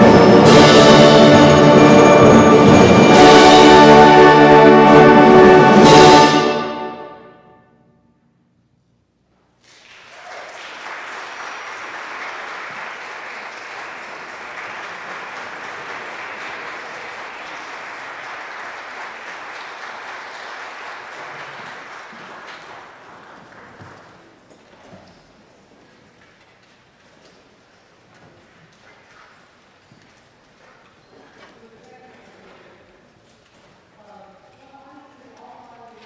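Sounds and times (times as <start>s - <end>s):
concert band held chord: 0.0s - 7.6s
audience applause: 9.6s - 24.4s.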